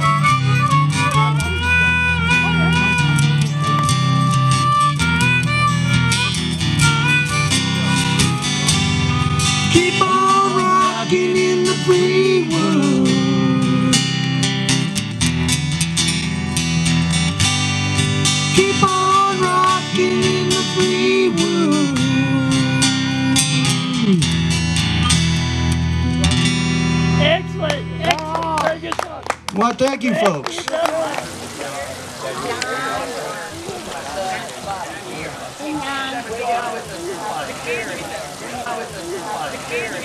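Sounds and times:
bending lead guitar melody: 0.0 - 29.5
country-rock band playing: 0.0 - 40.0.

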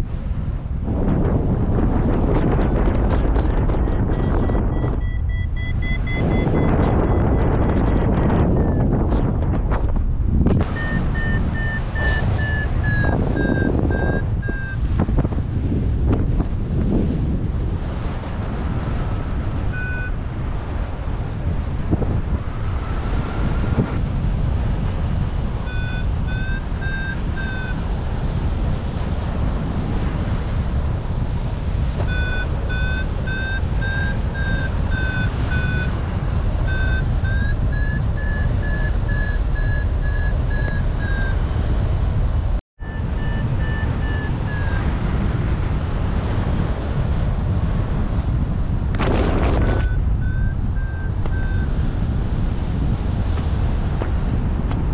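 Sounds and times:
wind over microphone: 0.0 - 54.9
variometer quick beeps: 3.8 - 9.2, 10.6 - 14.9, 19.0 - 20.2, 25.6 - 27.8, 32.0 - 41.5, 42.8 - 44.9, 49.1 - 51.9.

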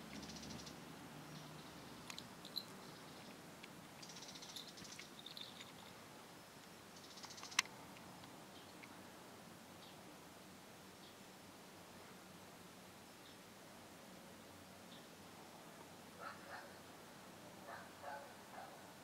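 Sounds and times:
small bells jingling: 2.4 - 3.2, 4.0 - 6.0
sharp click: 7.2 - 7.7.

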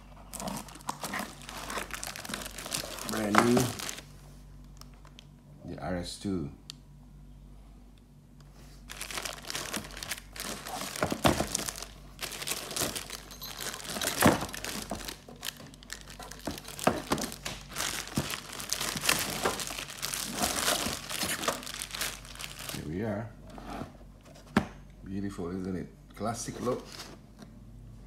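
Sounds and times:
plastic bag crinkling: 0.0 - 5.2, 8.8 - 23.0.

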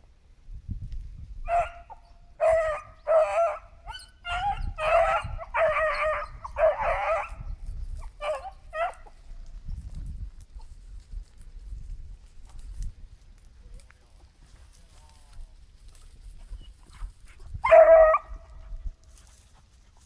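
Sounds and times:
hounds yelping: 1.5 - 9.2, 16.5 - 18.8.

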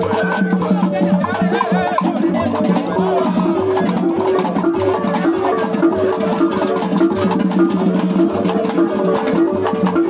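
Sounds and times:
percussion music with repeating figure: 0.0 - 10.0.

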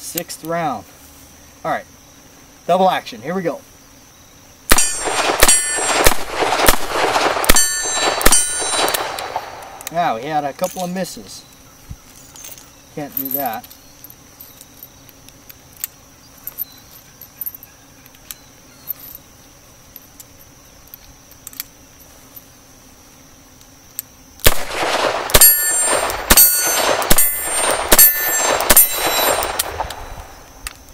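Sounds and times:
revolver gunshots echoing: 4.7 - 9.8, 24.4 - 30.5
revolver handling clicks: 5.0 - 10.0, 20.0 - 21.8, 23.6 - 30.9.

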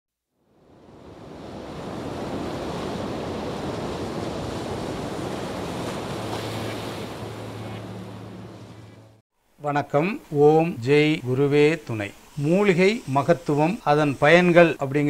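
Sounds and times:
low steady hum: 6.1 - 9.6.

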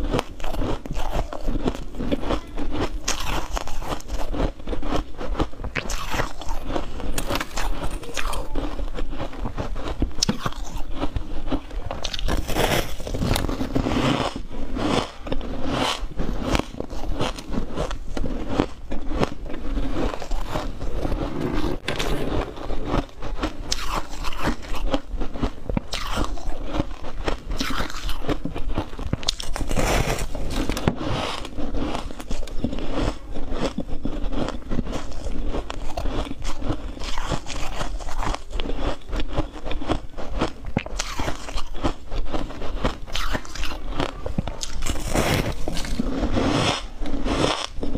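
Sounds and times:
person crunching ice: 0.0 - 47.9.

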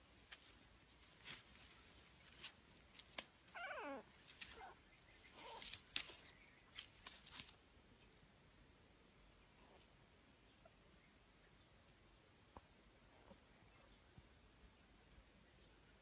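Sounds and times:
rustling grass: 0.0 - 7.7.

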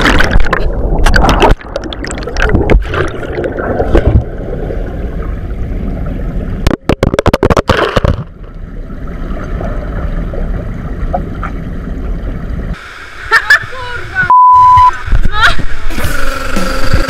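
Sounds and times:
underwater rushing and bubbling: 0.0 - 17.0.

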